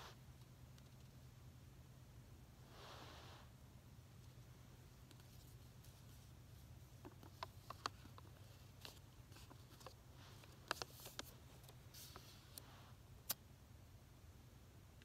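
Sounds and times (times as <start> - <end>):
low steady hum: 0.0 - 15.0
hands handling small objects: 4.2 - 13.4.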